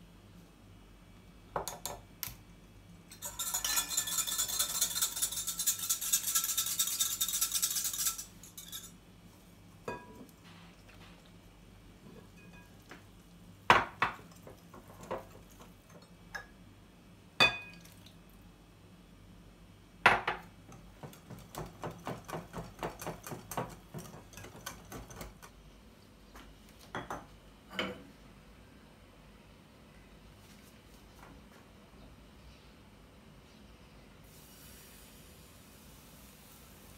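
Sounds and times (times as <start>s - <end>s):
whisk tapping: 3.1s - 8.9s, 21.0s - 25.5s
whisk clinking against glass bowl: 3.1s - 9.0s, 12.3s - 12.8s, 21.0s - 25.5s.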